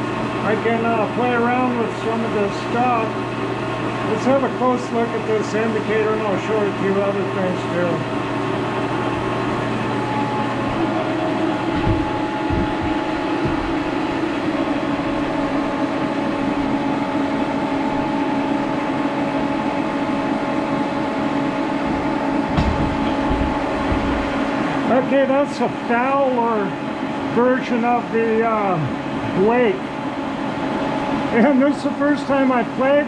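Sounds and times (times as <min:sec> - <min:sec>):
milling machine spindle hum: 0:00.0 - 0:33.0
low knocks: 0:09.5 - 0:15.7, 0:21.9 - 0:24.7.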